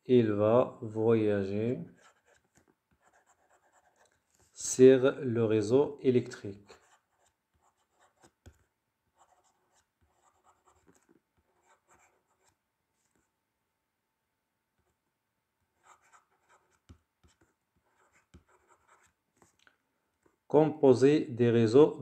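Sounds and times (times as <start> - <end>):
pen scratching on paper: 1.9 - 4.6, 6.7 - 13.2, 15.8 - 19.5.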